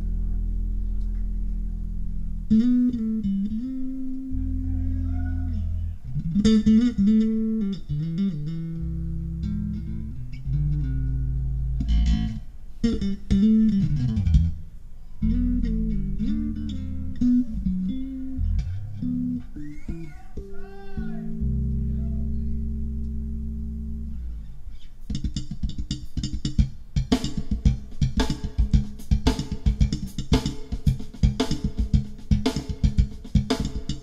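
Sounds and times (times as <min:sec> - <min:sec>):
plucked electric bass: 0:00.0 - 0:34.0.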